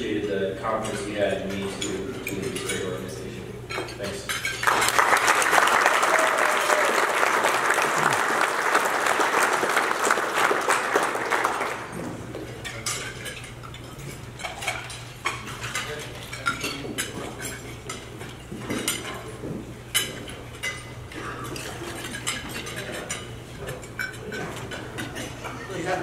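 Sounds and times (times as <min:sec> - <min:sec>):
cutlery and dishes clinking: 0:00.7 - 0:05.0, 0:11.9 - 0:26.0
audience applauding: 0:04.6 - 0:12.0.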